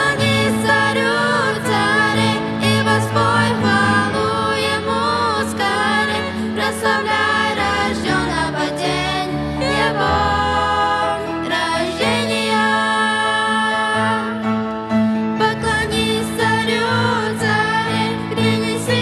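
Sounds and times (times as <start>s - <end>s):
woman and girls singing: 0.0s - 14.4s.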